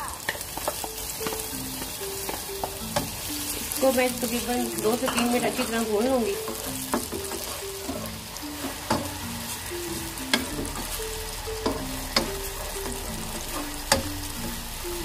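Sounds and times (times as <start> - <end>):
food sizzling in hot oil: 0.0 - 15.0
soft background music: 0.0 - 15.0
wooden spoon knocking on pan: 3.8 - 9.2, 10.3 - 11.0, 11.6 - 14.6.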